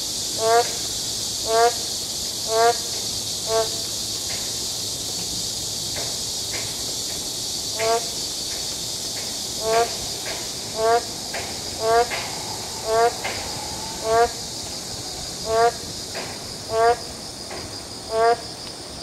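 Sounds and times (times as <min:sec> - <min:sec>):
frogs calling: 0:00.0 - 0:04.4, 0:07.6 - 0:08.3, 0:09.4 - 0:18.5
steady high hiss: 0:00.0 - 0:19.0.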